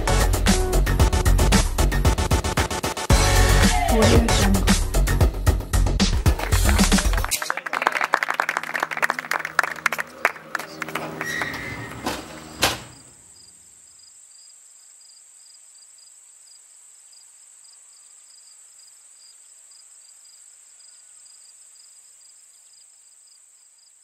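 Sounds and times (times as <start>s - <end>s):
insects chirring: 12.8s - 24.0s.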